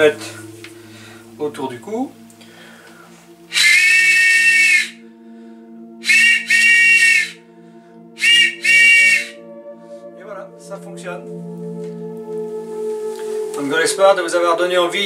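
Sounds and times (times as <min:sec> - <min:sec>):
wooden train whistle blasts: 0:03.5 - 0:05.0, 0:06.0 - 0:07.4, 0:08.2 - 0:09.8.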